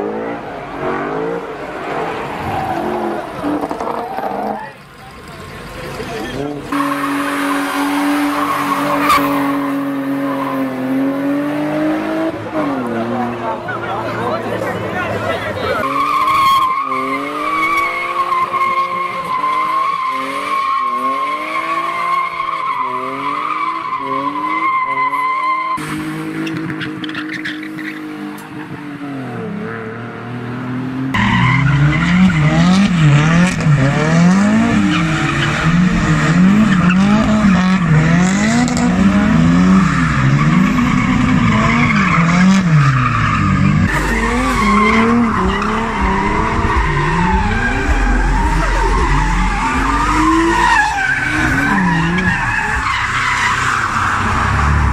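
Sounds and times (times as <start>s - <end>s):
car engines revving: 0.0s - 54.9s
tyres squealing: 31.2s - 54.9s.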